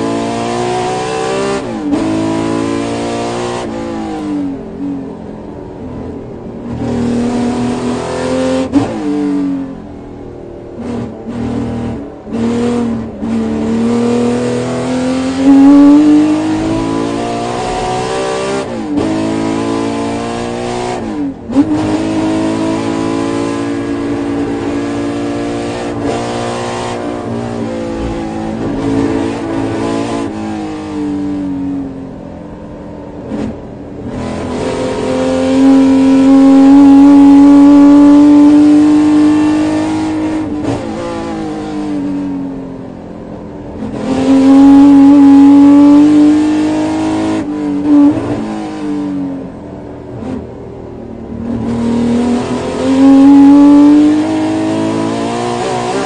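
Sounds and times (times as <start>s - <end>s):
engine revving at full throttle: 0.0s - 4.2s, 10.8s - 31.7s, 33.3s - 42.1s, 43.8s - 49.1s, 51.4s - 56.0s.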